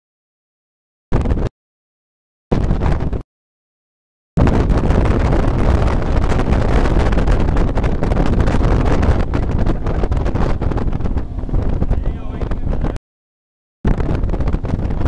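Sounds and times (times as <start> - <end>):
wind buffeting microphone: 1.2 - 1.5, 2.6 - 3.2, 4.4 - 13.0, 13.9 - 15.0
wake churning: 4.4 - 11.9
boat engine: 4.4 - 13.0.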